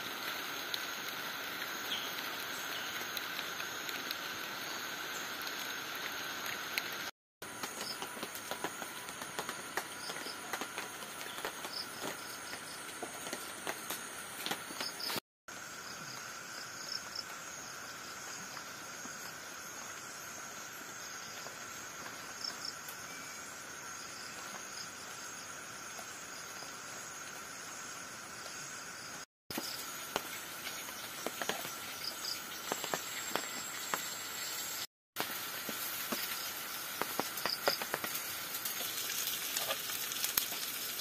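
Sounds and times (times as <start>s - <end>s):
forest insects chorus: 0.0s - 41.0s.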